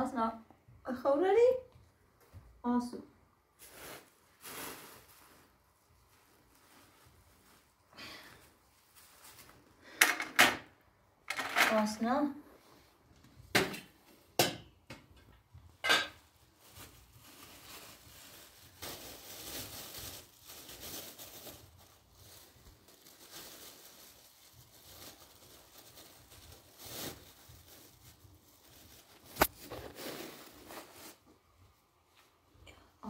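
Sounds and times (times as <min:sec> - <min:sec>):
plastic bag rustling: 0:03.5 - 0:10.0, 0:15.3 - 0:32.5.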